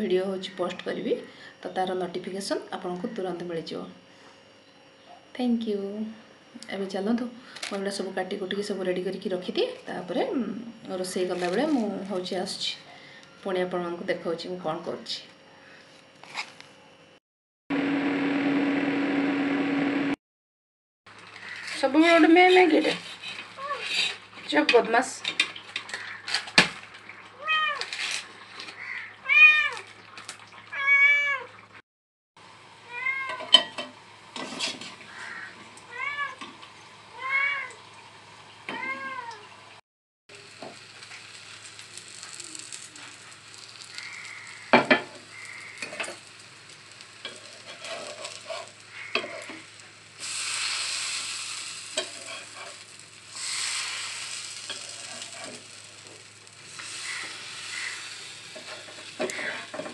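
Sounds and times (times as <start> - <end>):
hot oil sizzling: 21.1 - 31.8, 32.4 - 59.9
cat meowing: 28.8 - 29.8, 30.7 - 31.5, 32.9 - 33.4, 37.2 - 37.8, 38.7 - 39.4.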